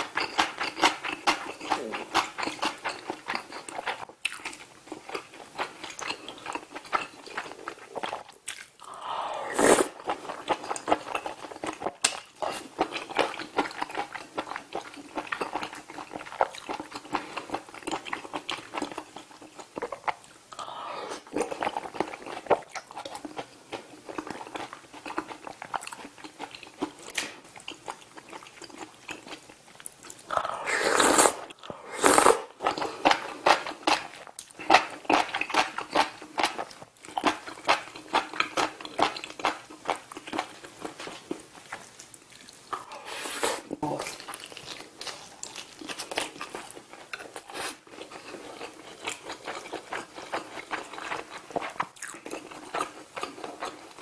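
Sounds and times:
wet chewing: 0:00.0 - 0:09.0, 0:09.6 - 0:43.0, 0:43.8 - 0:54.0
noodles slurping: 0:08.8 - 0:10.7, 0:30.2 - 0:34.1
mouth smacking: 0:30.1 - 0:32.8.

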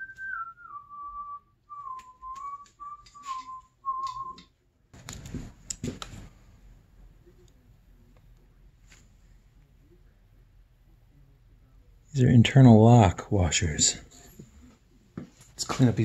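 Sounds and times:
person whistling a slow tune: 0:00.0 - 0:04.5
rustling and clicks: 0:01.9 - 0:06.4.

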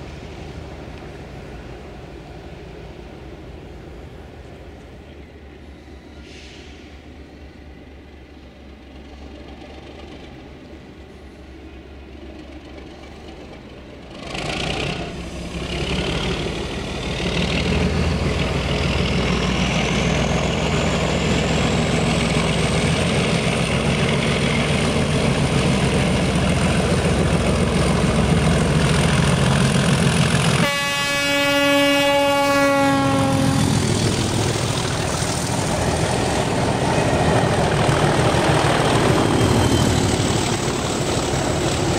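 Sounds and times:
diesel locomotive engine: 0:00.0 - 0:41.9
locomotive horn: 0:30.6 - 0:33.8.

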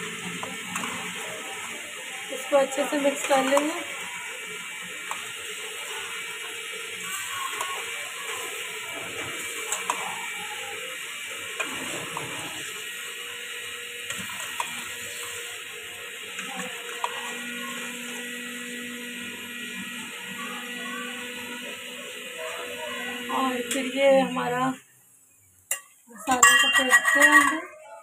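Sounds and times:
pot cooking hiss: 0:00.0 - 0:27.8.

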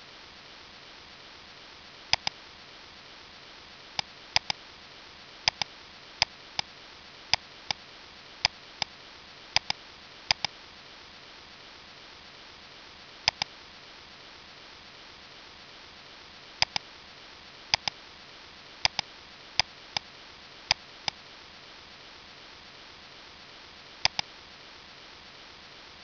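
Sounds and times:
faint steady hiss: 0:00.0 - 0:26.0
computer mouse clicking: 0:02.1 - 0:02.4, 0:04.4 - 0:04.6, 0:05.5 - 0:06.3, 0:09.6 - 0:10.5, 0:13.3 - 0:13.5, 0:16.6 - 0:16.8, 0:17.7 - 0:18.0, 0:18.8 - 0:19.1, 0:24.0 - 0:24.3.

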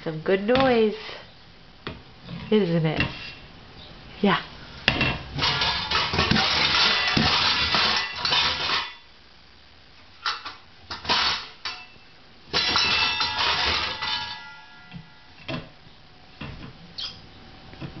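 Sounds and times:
metal cookware clattering: 0:04.9 - 0:09.1, 0:10.2 - 0:15.7.

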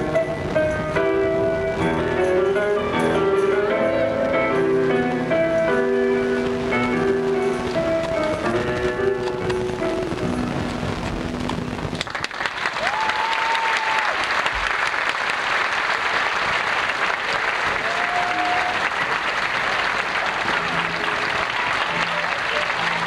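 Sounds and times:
audience applause: 0:11.7 - 0:23.0.

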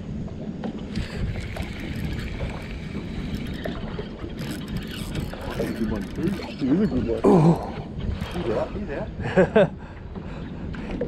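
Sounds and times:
water noise: 0:00.0 - 0:11.0
wind: 0:00.0 - 0:11.0
fishing reel clicking: 0:00.9 - 0:06.8.

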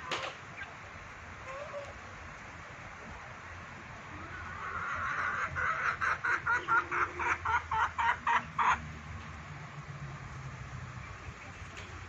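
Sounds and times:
chicken clucking: 0:01.4 - 0:02.0, 0:04.1 - 0:08.8.

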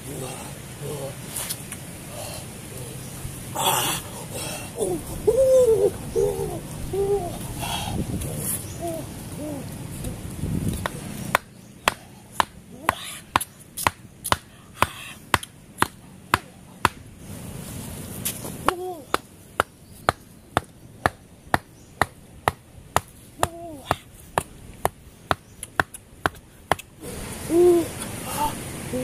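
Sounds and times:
rock hammering wooden stake: 0:10.8 - 0:17.0, 0:18.6 - 0:26.9.

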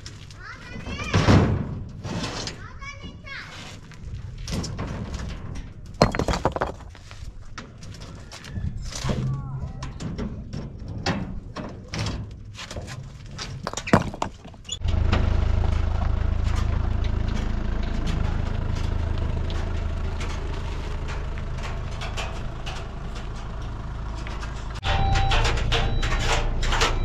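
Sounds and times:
stones knocking on steel truck bed: 0:05.9 - 0:07.2, 0:13.6 - 0:14.7
pickup truck engine running: 0:14.8 - 0:25.2.

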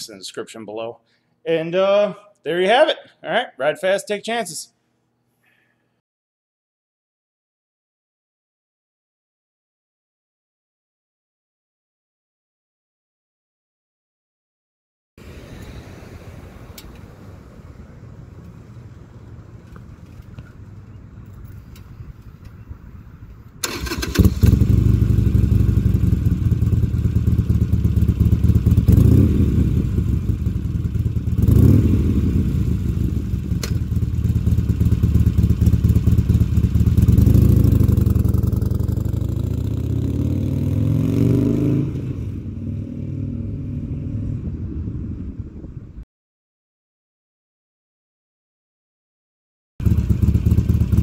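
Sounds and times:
motorcycle engine revving: 0:23.6 - 0:45.2, 0:49.8 - 0:51.0.

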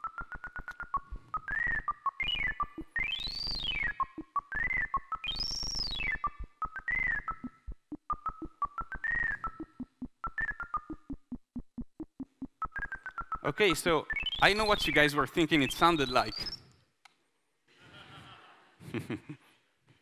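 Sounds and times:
electronic tone beeping and swooping: 0:00.0 - 0:11.4.

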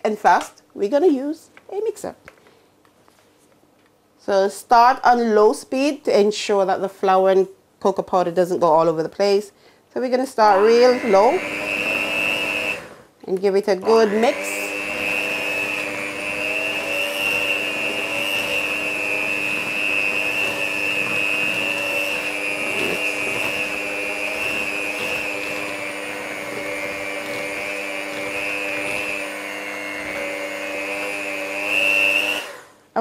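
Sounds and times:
electric hand mixer whirring: 0:10.4 - 0:13.1, 0:13.8 - 0:32.8.

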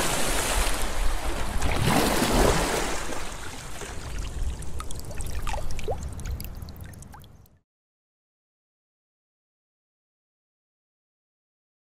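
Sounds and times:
water splashing and pouring: 0:00.0 - 0:07.5
water gurgling and dripping: 0:01.5 - 0:07.6.

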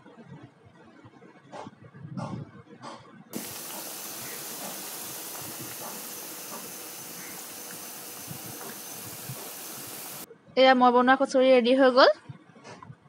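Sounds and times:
food deep-frying in oil: 0:03.4 - 0:10.3.

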